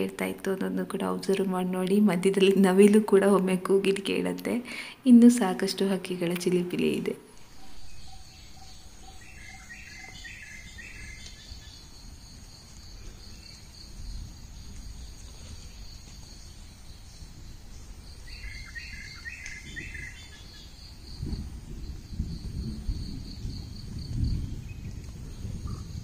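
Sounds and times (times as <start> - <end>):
songbird singing: 5.4 - 26.0
high insect drone: 7.4 - 26.0.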